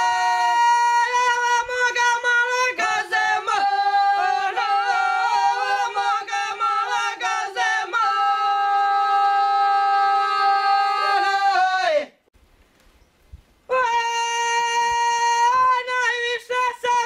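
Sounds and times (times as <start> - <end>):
women singing unaccompanied: 0.0 - 12.0.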